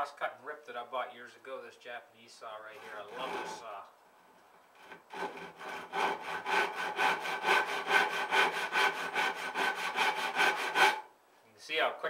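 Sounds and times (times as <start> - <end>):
handsaw cutting wood: 2.7 - 3.8, 4.8 - 11.1.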